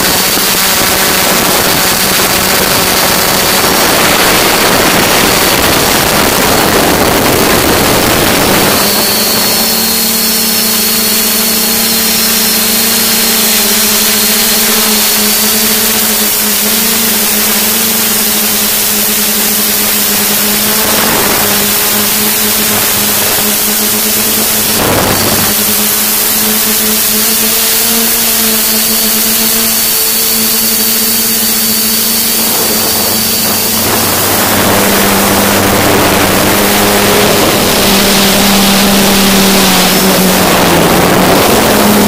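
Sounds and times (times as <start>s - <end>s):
drone propeller hum: 0.0s - 42.0s
wind rushing over microphone: 0.0s - 42.0s.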